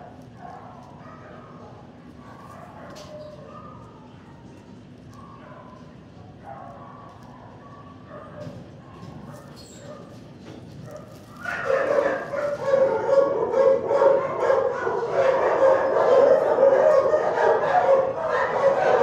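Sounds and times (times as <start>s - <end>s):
dog barking and yipping: 10.9s - 19.0s.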